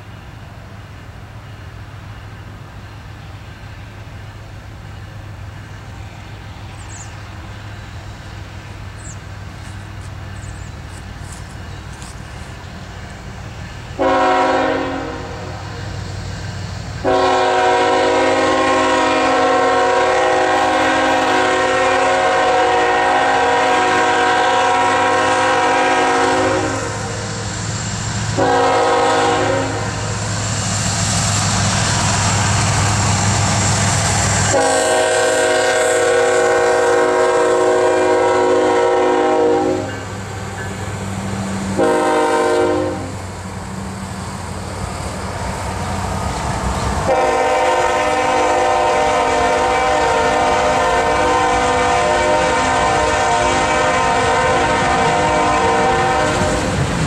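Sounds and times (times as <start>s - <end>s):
diesel locomotive engine rumble: 0.0s - 57.0s
train air horn blasts: 14.0s - 15.9s, 17.0s - 27.4s, 28.3s - 30.2s, 34.2s - 40.1s, 41.7s - 43.2s, 47.0s - 56.8s.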